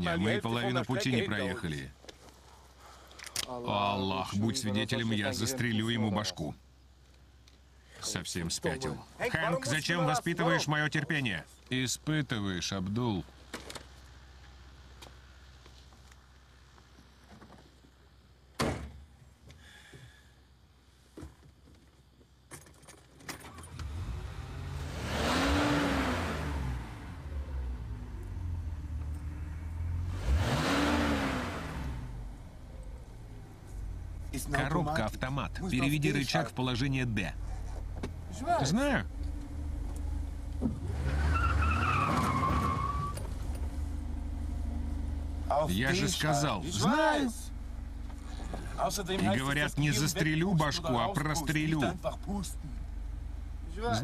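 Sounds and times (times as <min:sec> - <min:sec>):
car engine starting and idling: 0:23.3 - 0:54.0
tyres squealing: 0:40.8 - 0:43.5.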